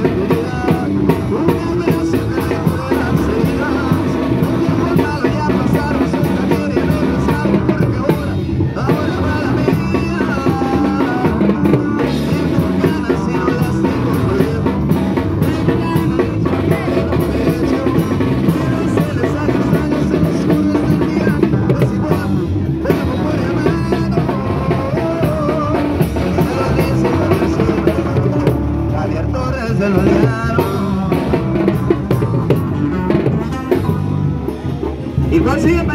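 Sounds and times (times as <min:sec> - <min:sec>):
live band playing dance music: 0:00.0 - 0:35.9
steady drum beat: 0:00.0 - 0:35.9.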